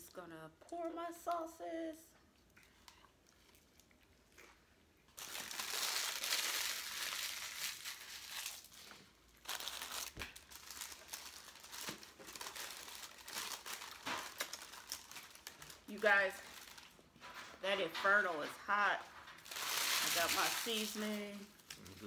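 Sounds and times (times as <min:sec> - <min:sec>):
paper wrappers crinkling: 0:05.2 - 0:22.0.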